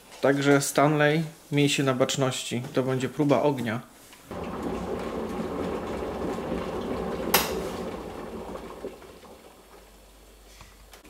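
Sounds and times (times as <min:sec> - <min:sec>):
kettle water boiling: 0:04.3 - 0:10.5.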